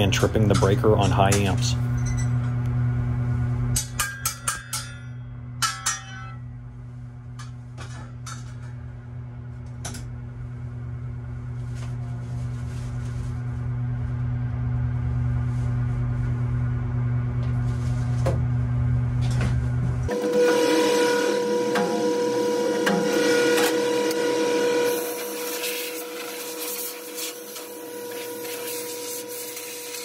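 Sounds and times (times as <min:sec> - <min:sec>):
low electrical hum: 0:00.0 - 0:20.2.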